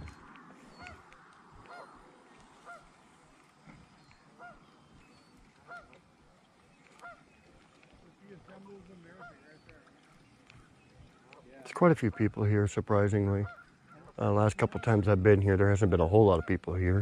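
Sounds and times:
geese honking: 0.0s - 3.4s, 4.4s - 4.8s, 5.5s - 6.2s, 6.8s - 10.2s, 11.2s - 17.0s.

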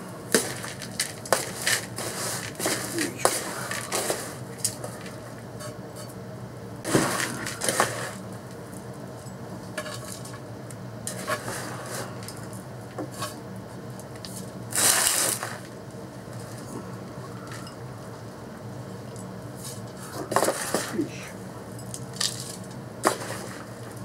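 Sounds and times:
metal scoop scraping soil: 0.4s - 4.4s, 6.9s - 8.2s, 11.1s - 12.2s, 14.7s - 15.6s, 20.4s - 21.0s.

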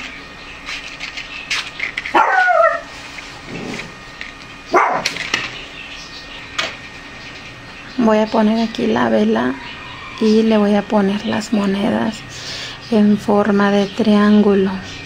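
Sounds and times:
dog yelping: 2.1s - 2.9s, 4.7s - 5.2s.

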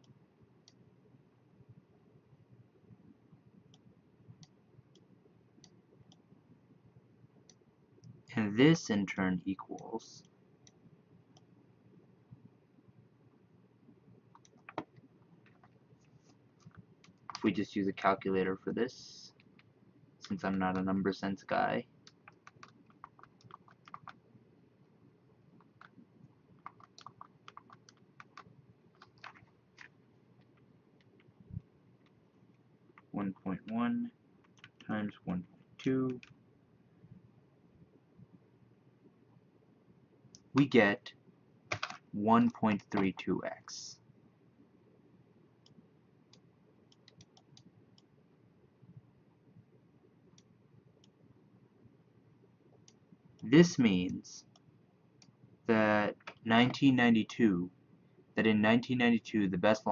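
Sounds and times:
calculator keys clicking: 22.2s - 24.2s, 26.6s - 29.9s, 41.7s - 42.0s.

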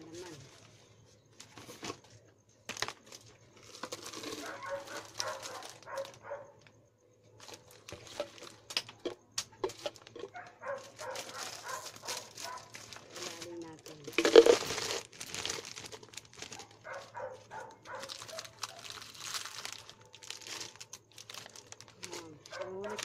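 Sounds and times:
wrapper crinkling: 2.7s - 6.4s, 7.4s - 23.0s
plastic jar clicks and knocks: 7.9s - 10.4s, 14.0s - 15.0s.

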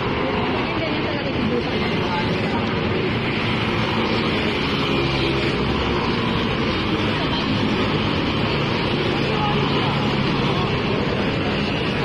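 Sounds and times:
scooters and cars passing: 0.0s - 12.0s.

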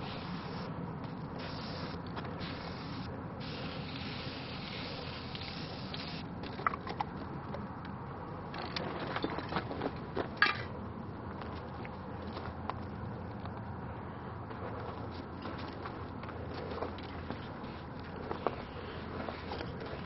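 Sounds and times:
spray paint can hissing: 0.0s - 0.7s, 1.4s - 6.3s.

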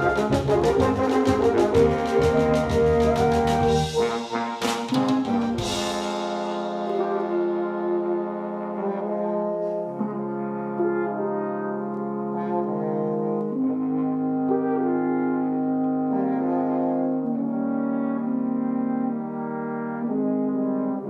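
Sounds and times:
electric bass line: 0.0s - 4.3s, 4.9s - 8.3s
drum hits: 0.0s - 7.4s
french horns playing chords: 0.0s - 21.0s
cymbal crash: 3.7s - 7.8s.

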